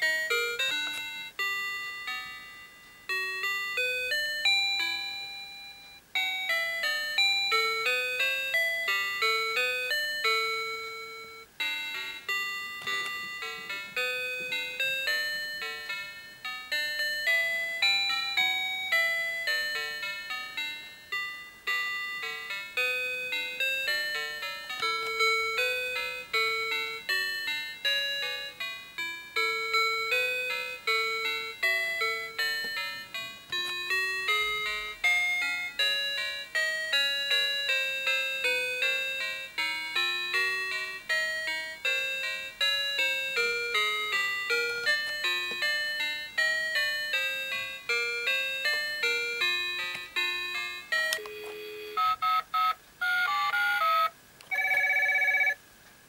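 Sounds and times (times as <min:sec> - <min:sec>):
toy phone electronic tune: 0:00.0 - 0:55.6
toy phone key tones: 0:48.3 - 0:55.6.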